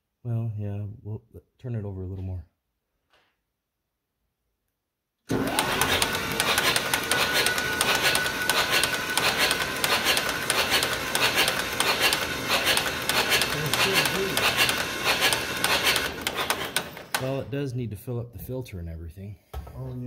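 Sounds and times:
electric starter cranking engine: 5.3 - 17.6.

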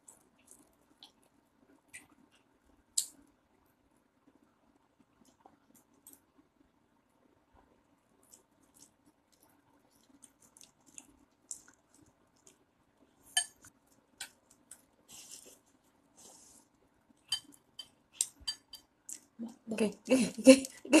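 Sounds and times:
kitten chewing with crunching clicks: 0.0 - 3.2, 8.1 - 15.0.

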